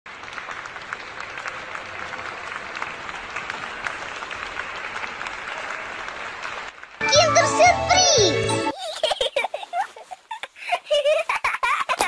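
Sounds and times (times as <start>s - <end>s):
audience applause: 0.1s - 8.3s.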